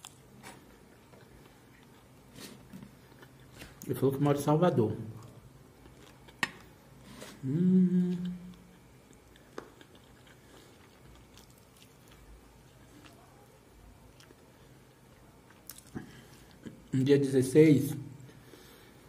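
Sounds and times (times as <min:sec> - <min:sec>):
man chewing: 0:00.0 - 0:03.9, 0:05.2 - 0:13.3, 0:14.1 - 0:17.0
man humming mmm: 0:07.2 - 0:08.7.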